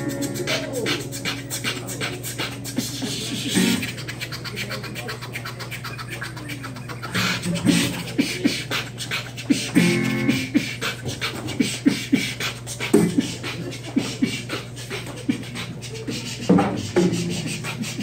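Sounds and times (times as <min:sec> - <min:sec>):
percussive acoustic guitar: 0:03.6 - 0:03.8, 0:09.7 - 0:10.5.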